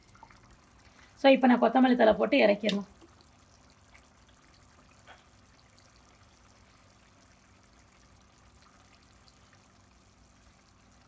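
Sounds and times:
curry simmering in a pan: 2.4s - 11.0s.

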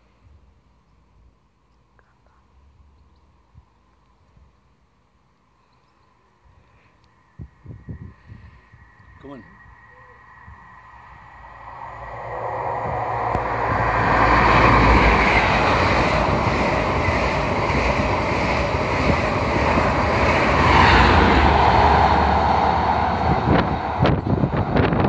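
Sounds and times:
train passing at speed: 6.7s - 25.0s
slipstream buffeting microphone: 10.4s - 25.0s.

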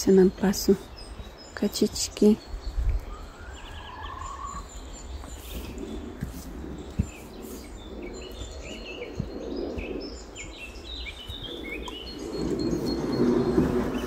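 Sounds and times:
ducklings peeping: 3.0s - 14.0s.

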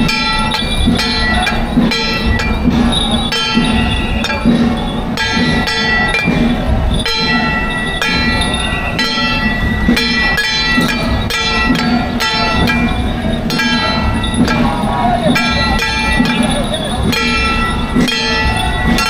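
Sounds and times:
cymbals struck: 0.0s - 19.0s
gongs struck: 0.0s - 19.0s.

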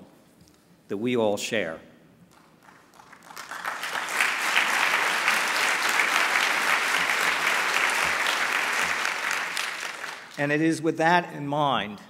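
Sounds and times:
large audience applauding: 2.3s - 10.4s.

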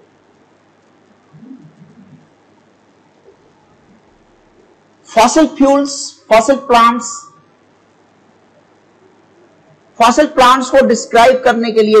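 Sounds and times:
faint low murmur: 0.0s - 5.2s, 7.2s - 10.0s
steady low hiss: 0.0s - 12.0s.

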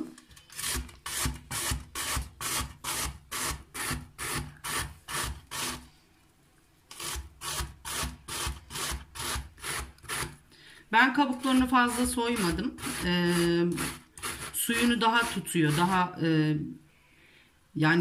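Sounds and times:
zucchini scraping on metal grater: 0.2s - 5.9s, 6.9s - 10.4s, 11.2s - 16.2s.

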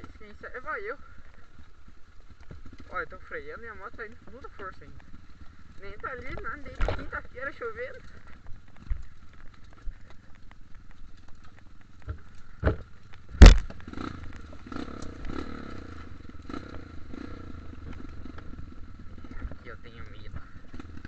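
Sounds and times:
bike rattling over rough trail: 0.0s - 21.0s
dirt bike engine running: 0.0s - 21.0s
bike knocking: 6.2s - 15.7s.

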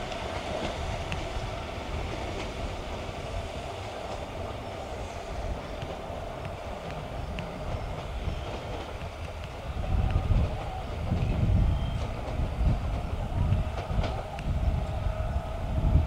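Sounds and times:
wheels clicking on rails: 0.0s - 15.1s
electric train rumbling: 0.0s - 16.0s.

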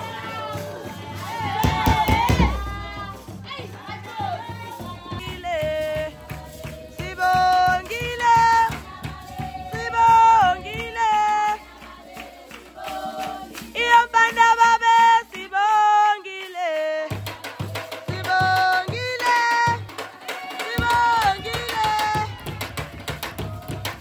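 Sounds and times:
steady drumbeat: 0.0s - 15.8s, 17.0s - 24.0s
voices singing a chant: 0.0s - 24.0s.

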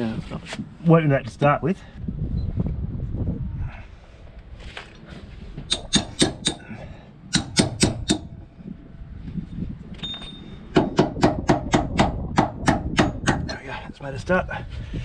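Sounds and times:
hammer striking metal: 5.7s - 6.7s, 7.3s - 8.3s, 10.0s - 13.6s.

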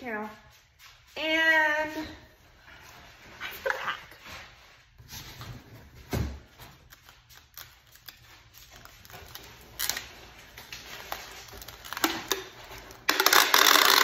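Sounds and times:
tape gun clicks and rattles: 11.8s - 14.0s.

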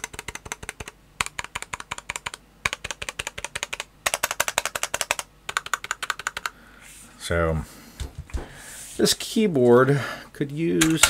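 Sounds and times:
person talking: 9.0s - 11.0s.

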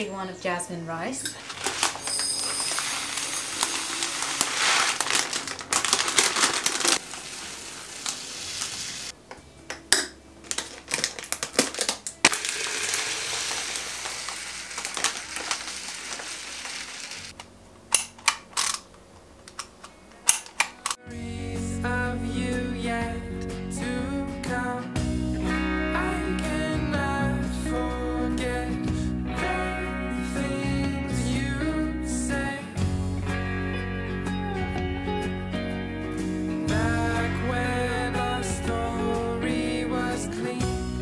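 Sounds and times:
grains pouring into glass jars: 1.4s - 9.1s, 11.8s - 17.3s.

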